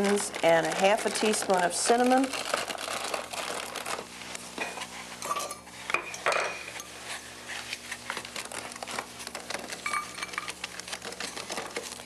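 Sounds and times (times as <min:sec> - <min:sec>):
utensils clinking on glass bowl: 0:04.6 - 0:07.0, 0:09.7 - 0:10.6.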